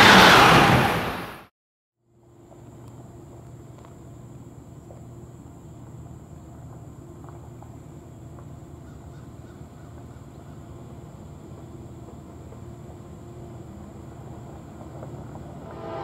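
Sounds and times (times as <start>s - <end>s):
diesel locomotives rumbling: 13.1s - 16.0s.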